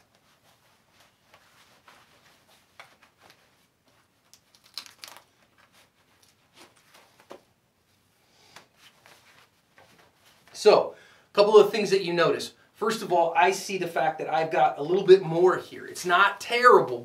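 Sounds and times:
clothing rustling: 0.0s - 10.7s.

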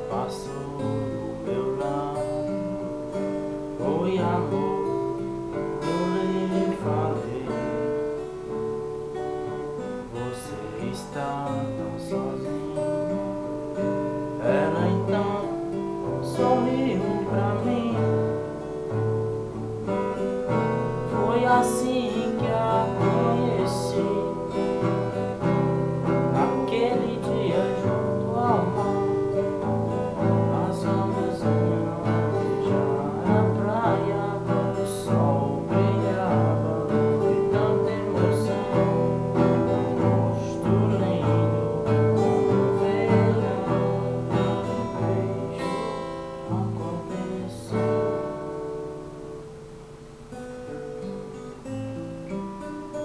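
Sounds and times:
man singing: 0.0s - 48.5s
acoustic guitar strumming: 0.0s - 53.0s.

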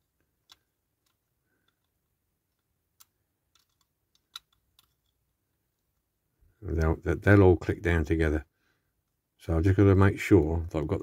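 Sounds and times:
faint clicks and taps of toy parts: 0.0s - 7.4s, 8.9s - 9.3s.

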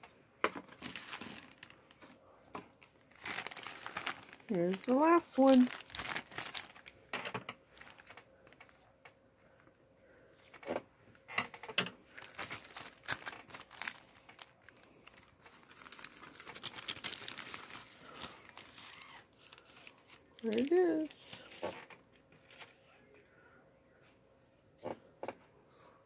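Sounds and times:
plastic bag crinkling: 0.5s - 8.8s, 12.1s - 22.8s.

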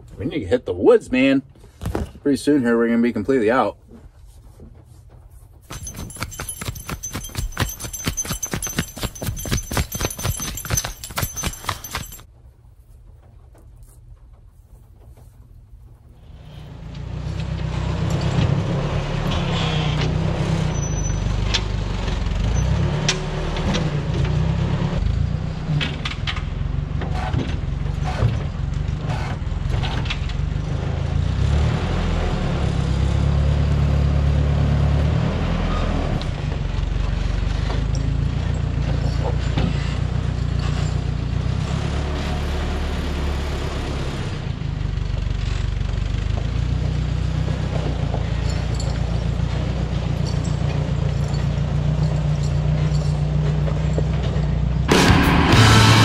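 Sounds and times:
knocks and clunks of logs: 1.7s - 2.2s
tractor engine running: 5.6s - 12.3s, 36.3s - 56.0s.

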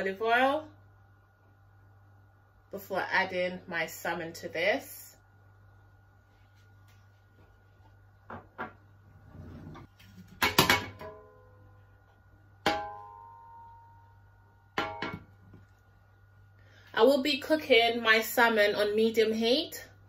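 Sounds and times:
metal pan clanking: 12.6s - 13.7s, 14.8s - 15.3s.

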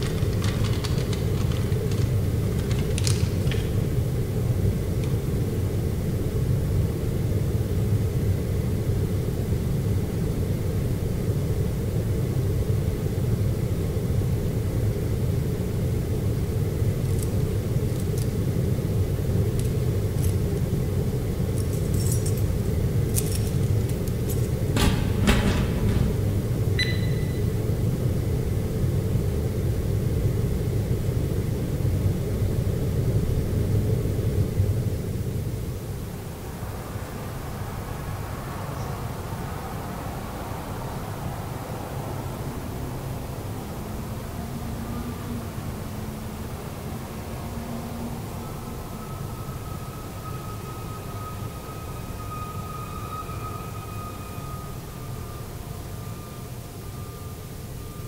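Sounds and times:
small clicks: 0.0s - 3.7s
short high tone: 26.8s - 27.5s.

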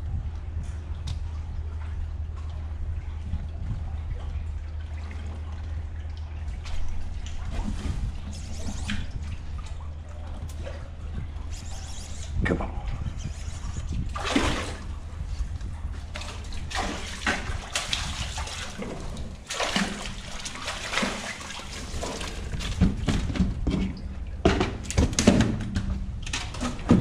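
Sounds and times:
fish splashing in water: 13.7s - 15.2s, 16.0s - 23.3s.

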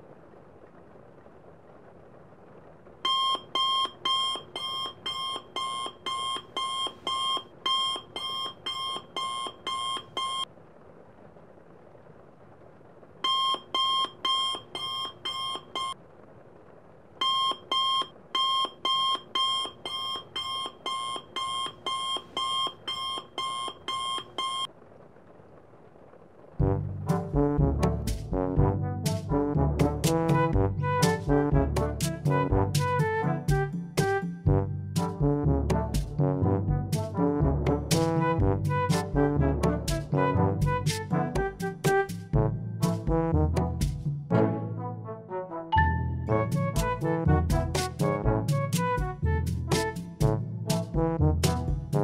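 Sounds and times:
phone alarm beeping: 3.0s - 10.5s, 13.2s - 16.0s, 17.2s - 24.7s.

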